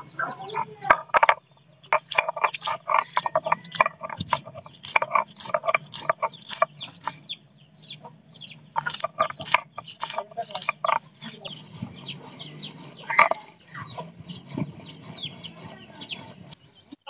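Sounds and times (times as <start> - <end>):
stone grinding on stone: 0.4 - 7.3, 8.6 - 16.6.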